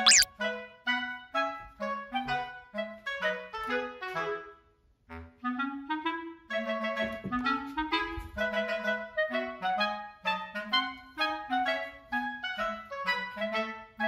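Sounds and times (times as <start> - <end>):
bouncy woodwind melody: 5.2 - 14.0.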